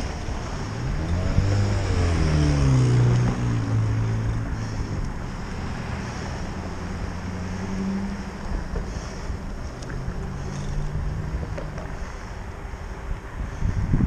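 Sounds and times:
low vehicle engine hum: 0.0s - 14.0s
road noise: 0.0s - 14.0s
wind buffeting microphone: 12.9s - 14.0s.

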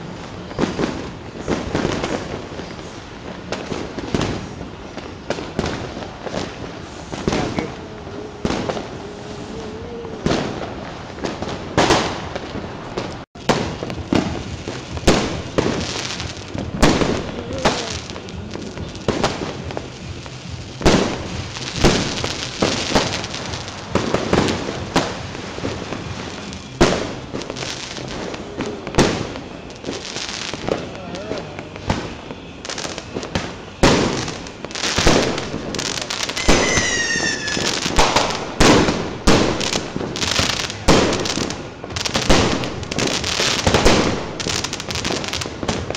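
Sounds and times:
firecrackers crackling pops: 0.0s - 45.9s
fireworks bangs and cracks: 0.0s - 45.9s.

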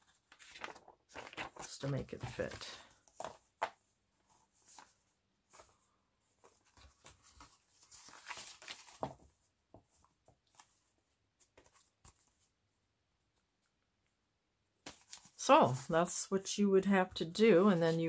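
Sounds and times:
paper rustling: 0.0s - 12.6s, 14.8s - 15.9s.

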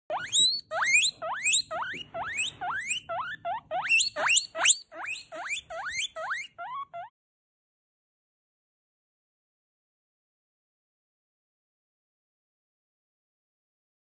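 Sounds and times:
guinea pig squealing whistles: 0.1s - 7.1s.

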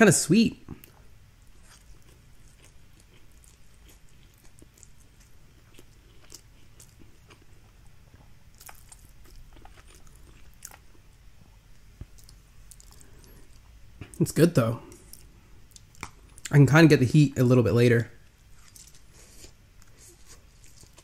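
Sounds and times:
chewing noodles: 0.7s - 11.0s, 12.0s - 14.2s, 18.5s - 21.0s.

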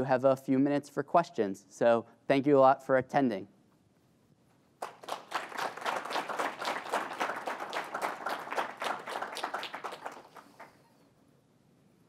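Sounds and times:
audience applauding: 4.8s - 10.9s.

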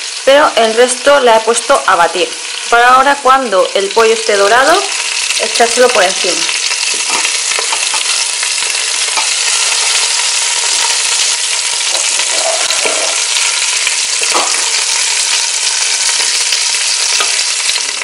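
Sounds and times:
chicken sizzling in hot oil: 0.0s - 18.0s
wooden spatula scraping pot: 6.8s - 15.3s.

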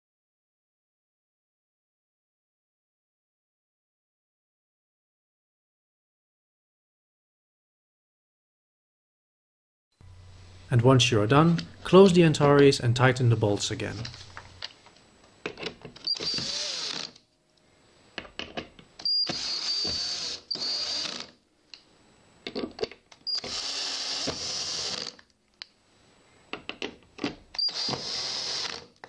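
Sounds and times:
small clicks of drill bit: 15.5s - 17.2s, 18.4s - 21.8s, 22.8s - 25.7s, 27.5s - 29.0s
cordless drill whining: 16.0s - 17.2s, 19.0s - 21.4s, 23.3s - 25.2s, 27.5s - 29.0s.

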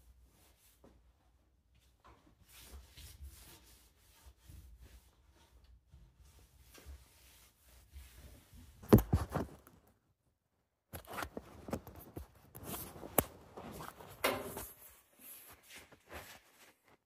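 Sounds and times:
handling clicks rubs and rustles: 11.0s - 17.0s.

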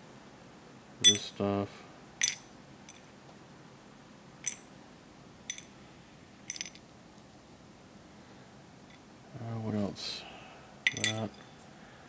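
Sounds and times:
metal parts clinking: 1.0s - 1.4s, 2.2s - 3.1s, 4.4s - 4.7s, 5.5s - 5.7s, 6.5s - 6.8s, 10.9s - 11.4s.

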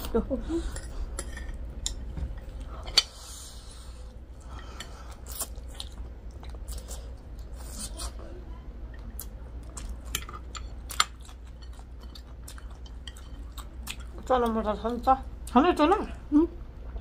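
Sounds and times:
chewing and mouth noises: 4.4s - 8.2s, 9.0s - 16.1s.

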